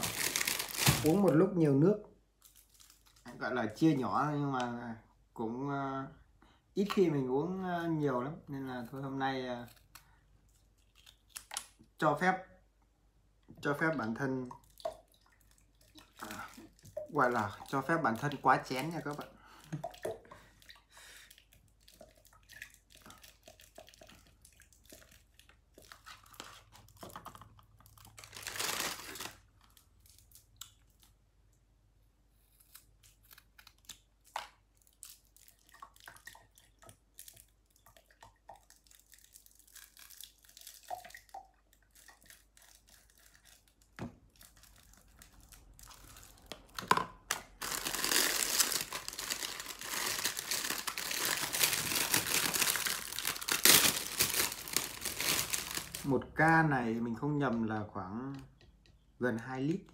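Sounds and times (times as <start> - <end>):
plastic wrapping crinkling: 0.0 - 1.5, 2.4 - 3.4, 15.6 - 31.2, 38.6 - 56.2.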